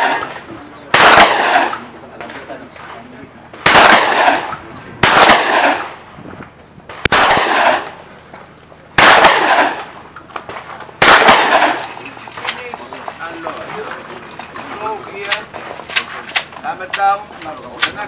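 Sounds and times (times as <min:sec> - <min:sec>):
shotgun shots with echo: 0:00.0 - 0:06.0, 0:06.9 - 0:08.0, 0:09.0 - 0:12.0.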